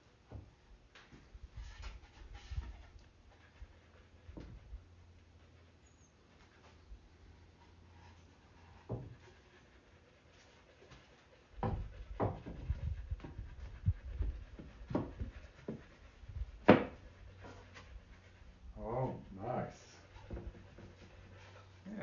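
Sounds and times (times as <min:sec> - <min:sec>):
wooden panels knocking: 0:16.6 - 0:17.0.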